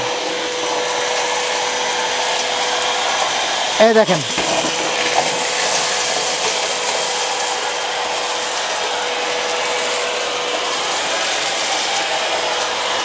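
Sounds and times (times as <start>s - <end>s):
vacuum cleaner whining: 0.0s - 13.0s
debris clattering through hose: 4.3s - 12.1s.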